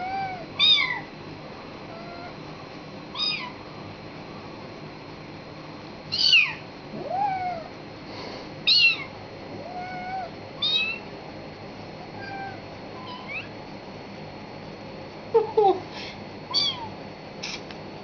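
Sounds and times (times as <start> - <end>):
high-pitched kitten mews: 0.0 - 1.1, 3.1 - 3.6, 6.1 - 7.7, 8.7 - 11.1, 12.1 - 13.5, 16.5 - 17.6
soft low meows: 1.9 - 2.4, 6.2 - 7.8, 8.7 - 11.1, 12.0 - 13.5.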